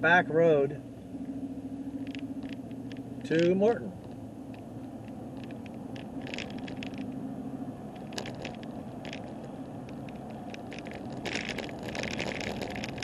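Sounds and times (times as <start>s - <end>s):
car engine and road rumble: 0.0s - 13.0s
quick clicking rattles: 5.4s - 7.2s, 8.0s - 13.0s.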